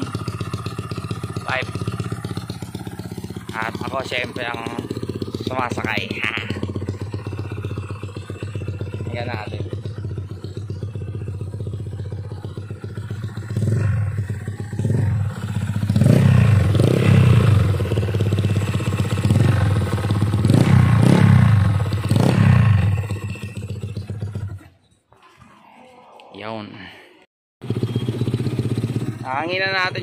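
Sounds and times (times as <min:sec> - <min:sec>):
scooter engine idling and revving: 0:00.0 - 0:25.4, 0:27.6 - 0:30.0.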